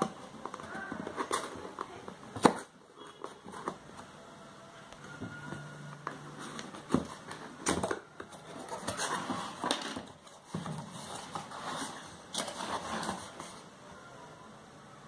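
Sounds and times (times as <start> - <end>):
cardboard flaps scraping: 6.1 - 13.7.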